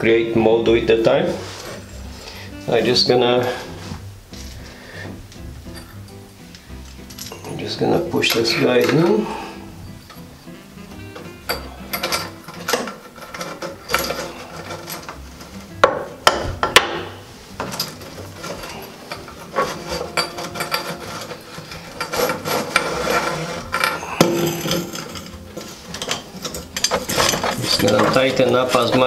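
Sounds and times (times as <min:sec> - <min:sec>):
metal clicking and knocking: 0:11.5 - 0:29.0.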